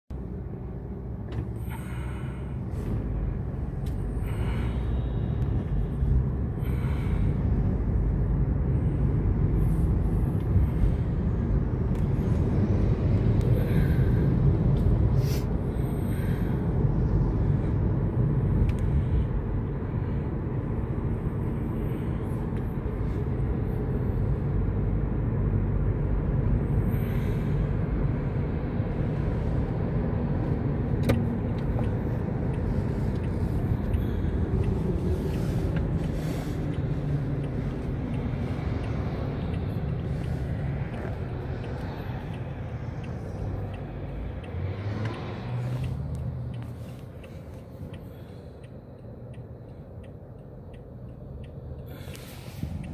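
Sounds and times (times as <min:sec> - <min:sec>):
road traffic rumble: 0:00.1 - 0:52.9
faint ticks: 0:31.0 - 0:52.9.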